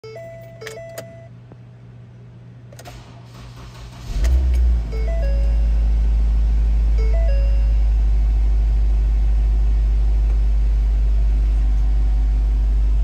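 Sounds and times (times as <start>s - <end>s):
car engine starting and idling: 2.6s - 13.0s
two-note warning chimes: 4.9s - 5.9s, 7.0s - 8.0s.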